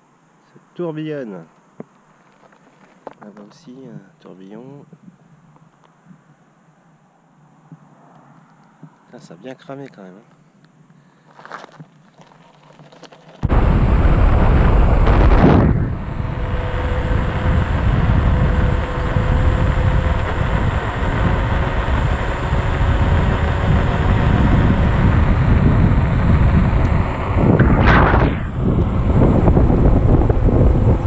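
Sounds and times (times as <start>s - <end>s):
tyre rumble on asphalt: 11.3s - 15.9s
wind buffeting microphone: 13.4s - 31.0s.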